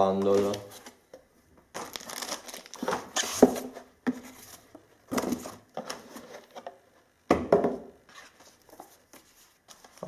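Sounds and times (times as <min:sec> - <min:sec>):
objects knocking on table: 0:07.3 - 0:07.9.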